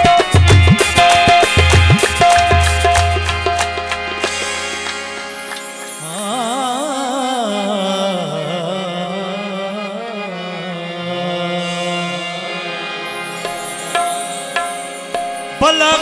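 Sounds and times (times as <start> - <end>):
harmonium chord: 0.0 - 16.0
person singing wordless notes: 6.0 - 14.0.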